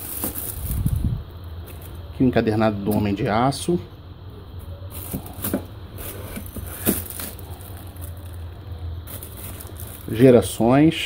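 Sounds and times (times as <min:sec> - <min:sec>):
plastic sleeves rustling and knocking: 0:00.0 - 0:01.0, 0:04.9 - 0:08.5, 0:09.1 - 0:10.2
steady low hum: 0:00.0 - 0:11.0.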